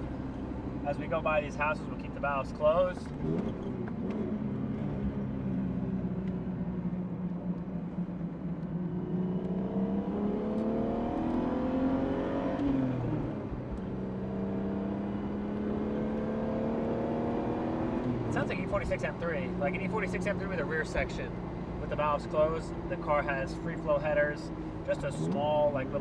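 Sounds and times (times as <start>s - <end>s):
car engine accelerating: 0.0s - 26.0s.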